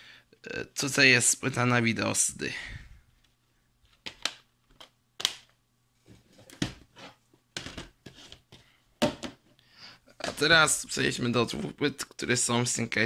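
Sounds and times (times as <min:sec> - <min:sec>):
plastic disc case clicks: 0:04.0 - 0:05.5.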